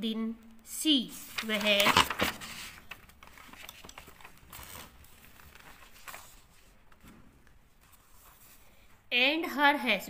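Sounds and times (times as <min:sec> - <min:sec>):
paper pages rustling: 0:01.2 - 0:08.9.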